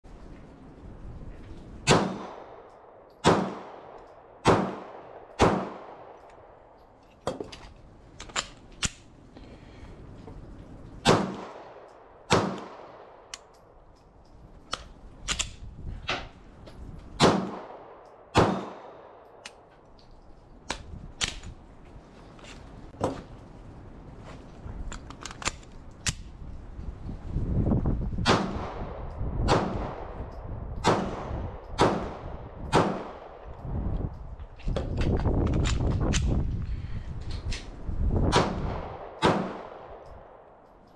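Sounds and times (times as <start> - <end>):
gunshots echoing: 1.8 - 6.3, 11.0 - 13.3, 17.2 - 19.3, 28.2 - 30.2, 30.8 - 33.5, 38.3 - 40.5.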